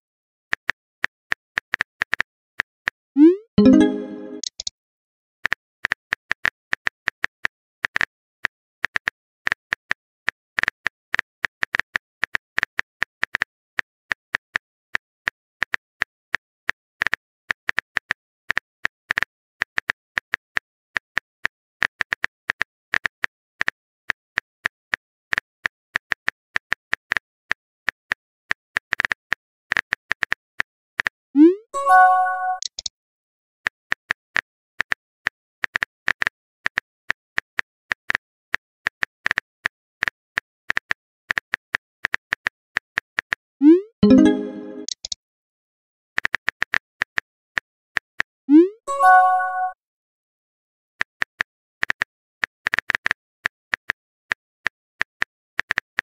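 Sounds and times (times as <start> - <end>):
phone keyboard typing clicks: 3.6 - 4.7, 31.9 - 32.9, 44.0 - 45.2.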